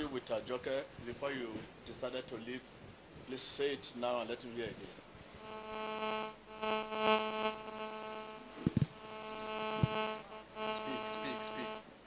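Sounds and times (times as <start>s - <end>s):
phone speaker electronic buzz: 5.4s - 11.9s.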